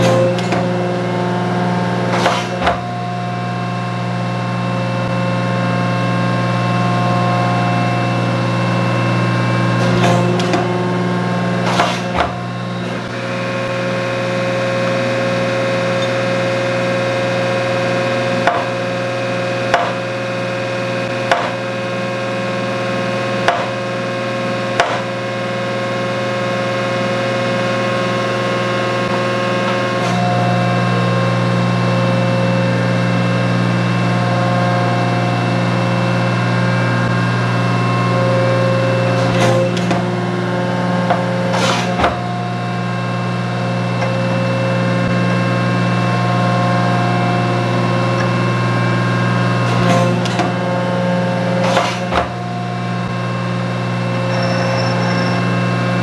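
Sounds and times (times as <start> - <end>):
metal planer drive humming: 0.0 - 56.0
machine knocks: 2.1 - 2.9, 11.6 - 13.0, 18.4 - 18.8, 19.7 - 20.1, 21.3 - 21.6, 23.4 - 23.8, 24.8 - 25.1, 41.0 - 42.3, 51.6 - 52.4.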